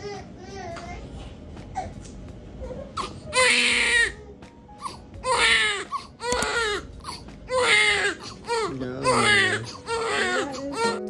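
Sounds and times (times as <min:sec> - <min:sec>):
newborn baby crying: 0:02.7 - 0:11.0.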